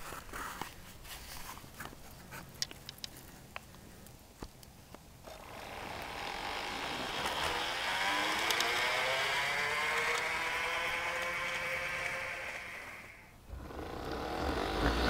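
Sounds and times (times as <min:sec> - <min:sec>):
model locomotive whine: 0:05.3 - 0:15.0.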